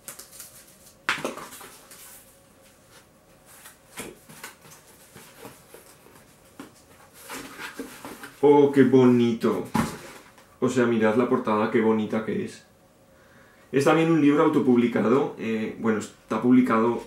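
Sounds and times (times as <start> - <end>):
cardboard crackling: 2.9 - 10.4.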